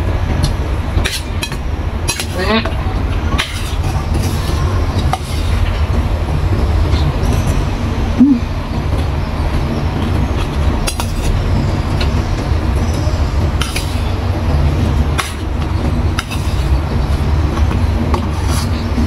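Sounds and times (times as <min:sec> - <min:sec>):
steady low rumble: 0:00.0 - 0:19.0
metal spoon scraping steel bowl: 0:03.4 - 0:05.7, 0:16.2 - 0:16.8.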